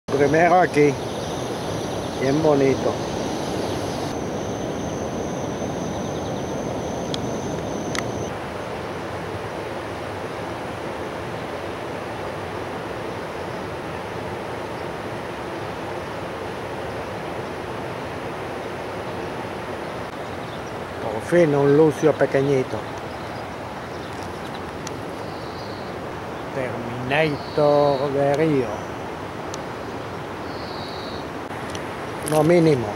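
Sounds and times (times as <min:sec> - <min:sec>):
river water rushing: 0:00.1 - 0:32.9
thin high whine: 0:01.4 - 0:08.3
sharp clicks: 0:07.1 - 0:08.2.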